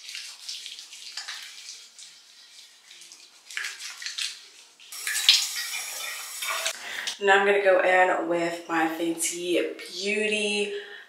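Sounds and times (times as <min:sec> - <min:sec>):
hands lathering cleanser on face: 0:00.0 - 0:06.8.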